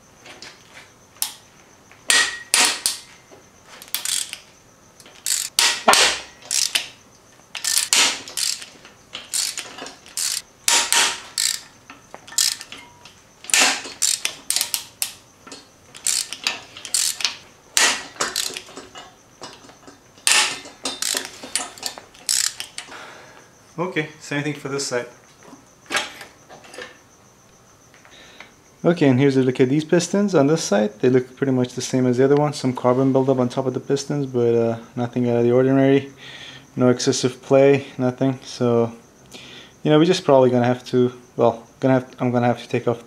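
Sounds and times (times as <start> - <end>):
ratchet wrench clicking: 2.1 - 3.0, 3.8 - 4.5, 5.1 - 12.9, 13.5 - 15.2, 16.0 - 18.8, 20.2 - 22.9.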